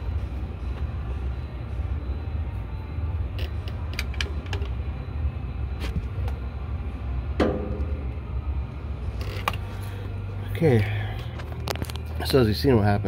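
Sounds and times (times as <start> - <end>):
low rumble: 4.8 - 10.6.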